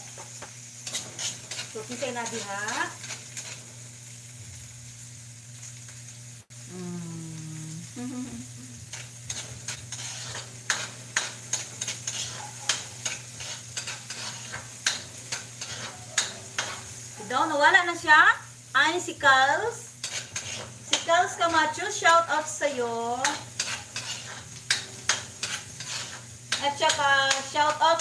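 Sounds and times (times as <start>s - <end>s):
frying sizzle: 0.0s - 28.0s
spatula scraping metal wok: 0.8s - 2.5s, 8.9s - 17.0s, 20.0s - 28.0s.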